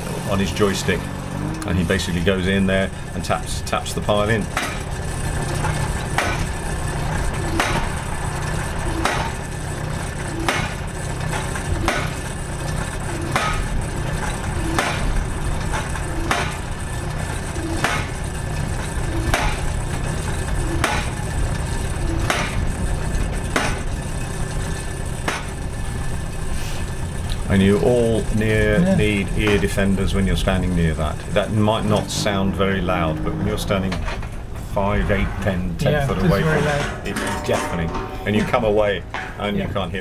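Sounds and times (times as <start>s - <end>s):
loader engine running: 0.0s - 40.0s
post driver hammering steel: 4.4s - 25.7s.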